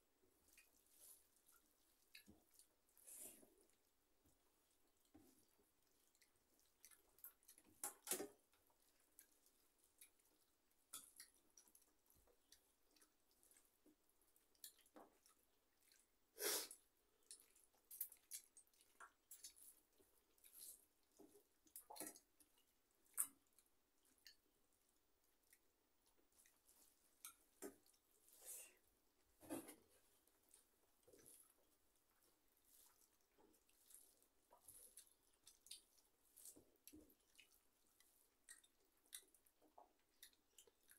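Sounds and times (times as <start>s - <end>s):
wet chewing and mouth clicks: 0.1s - 28.8s, 29.5s - 40.9s.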